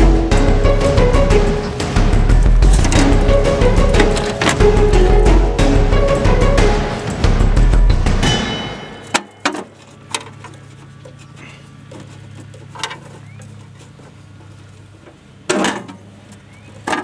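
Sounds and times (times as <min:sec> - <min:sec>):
steady low hum: 0:00.0 - 0:08.4.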